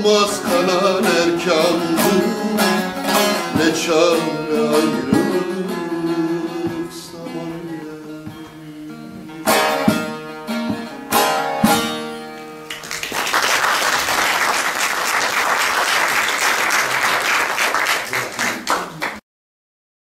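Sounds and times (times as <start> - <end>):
long-necked lute strumming chords: 0.0 - 12.7
audience applause: 12.7 - 19.2.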